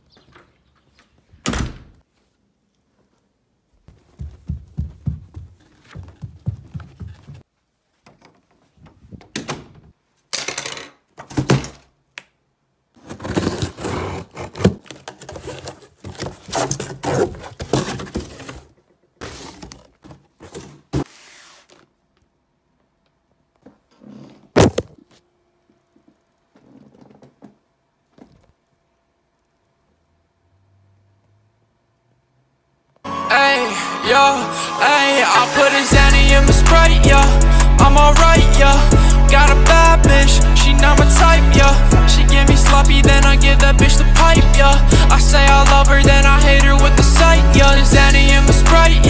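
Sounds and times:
cardboard and tape tearing: 13.0 - 21.9
cardboard box thumping: 24.6 - 25.0.

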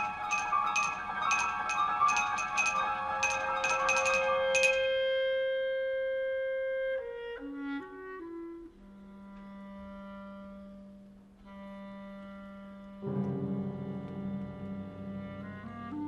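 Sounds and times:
solo clarinet: 4.4 - 16.0.

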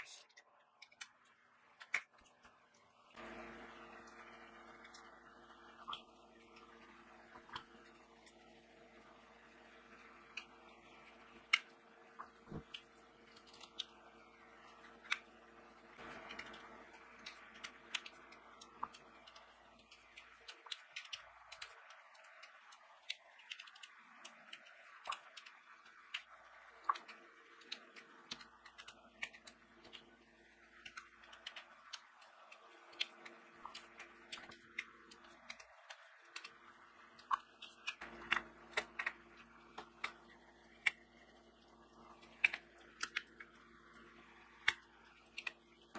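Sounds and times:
faint steady hum: 0.0 - 45.9.

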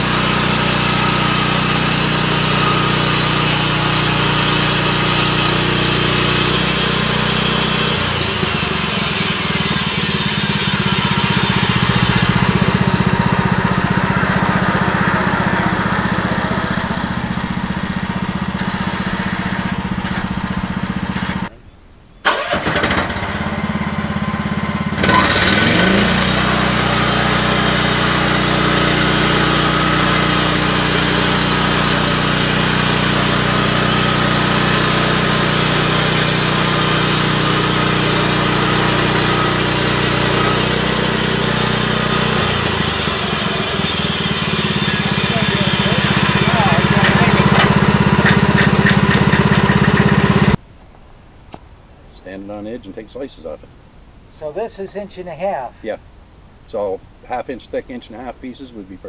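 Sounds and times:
band blade sawing wood: 0.0 - 17.3, 25.0 - 50.6
bandsaw sawmill engine running: 0.0 - 21.5, 22.3 - 50.6.

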